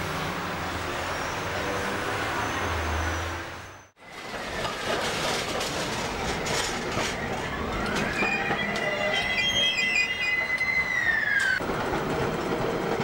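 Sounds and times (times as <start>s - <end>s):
tram wheel squeal: 0.7s - 13.0s
tram interior rumble: 4.0s - 13.0s
tram wheels clicking on rails: 4.0s - 13.0s.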